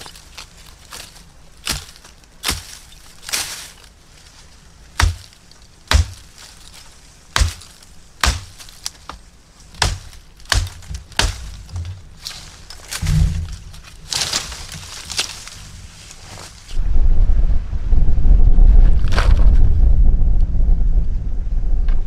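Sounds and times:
blade chopping bamboo: 1.6 - 3.6, 5.0 - 13.4.

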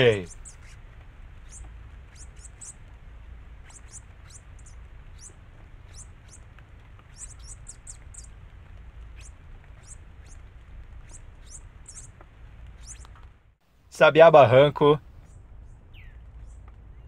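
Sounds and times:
finches chirping: 0.0 - 0.8, 1.4 - 2.8, 3.6 - 8.3, 9.1 - 13.2, 15.2 - 17.0
low steady rumble: 0.0 - 17.0.

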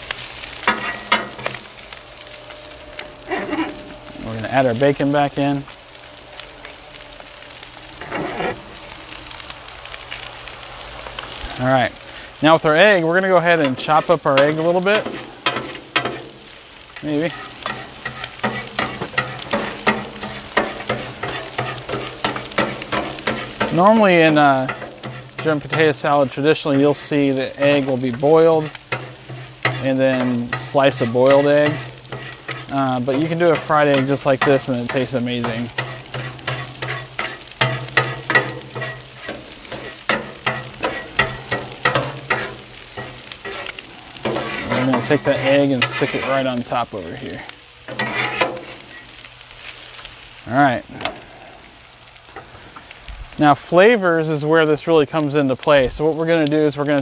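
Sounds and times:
low steady hum: 0.0 - 53.9
frying sizzle: 0.0 - 57.0
metal spatula clacking on griddle: 0.7 - 1.6, 13.6 - 16.4, 17.2 - 26.0, 27.6 - 46.4, 47.9 - 48.8.

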